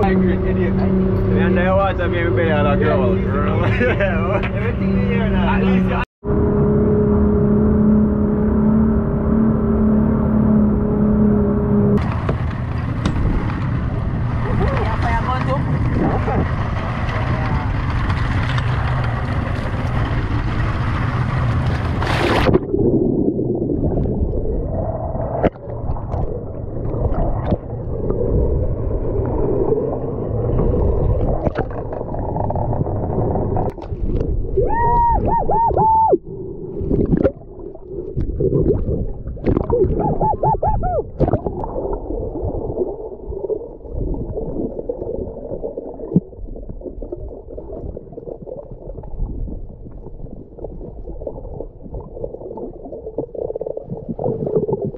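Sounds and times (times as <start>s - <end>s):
wind: 0.0s - 53.3s
boat noise: 0.0s - 54.9s
underwater rumble of moving water: 0.0s - 54.9s
warbling gurgles: 12.8s - 54.9s
small clicks underwater: 17.0s - 20.2s.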